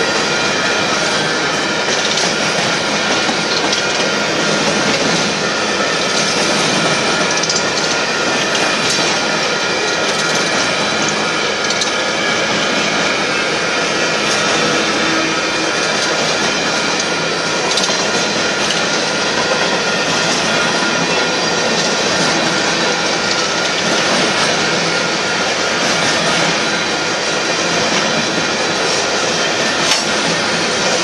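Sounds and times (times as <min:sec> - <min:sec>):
train wheels clattering on rails: 0:00.0 - 0:31.0.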